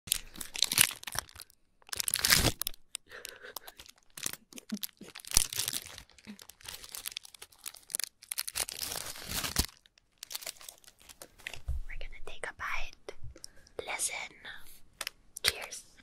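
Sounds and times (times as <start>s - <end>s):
plastic wrapper crinkling: 0.1s - 11.6s.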